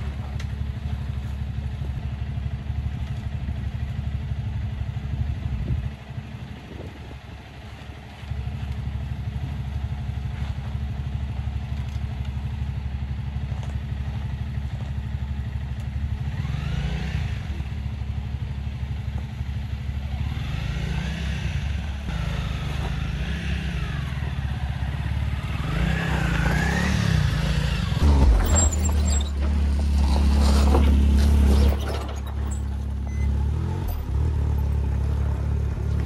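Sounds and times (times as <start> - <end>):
motorcycle engine running: 0.0 - 31.5, 32.1 - 36.0
low rumble: 24.9 - 33.3.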